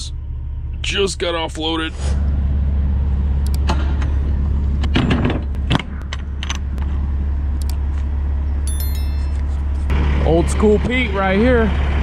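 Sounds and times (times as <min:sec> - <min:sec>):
diesel truck engine idling: 0:00.0 - 0:04.8, 0:09.5 - 0:12.0.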